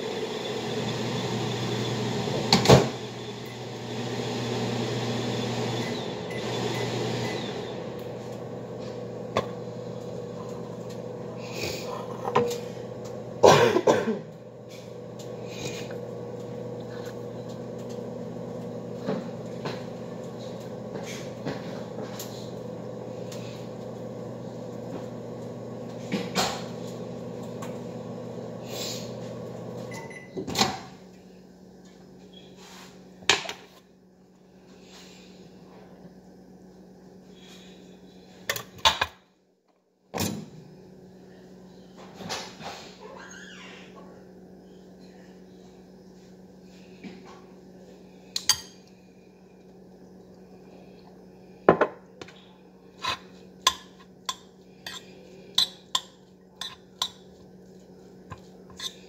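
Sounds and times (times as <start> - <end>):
steady low hum: 44.0 - 59.0.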